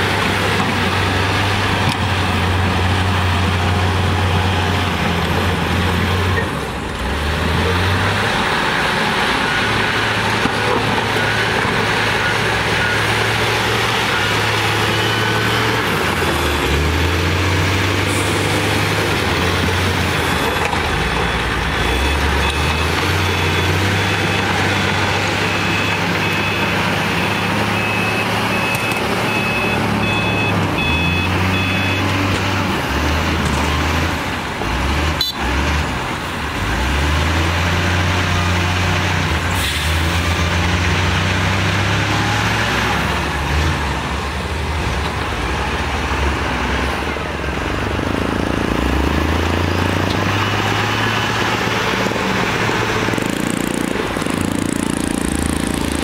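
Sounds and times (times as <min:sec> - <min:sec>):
heavy diesel engines working: 0:00.0 - 0:56.0
reversing alarm beeping: 0:18.2 - 0:32.2.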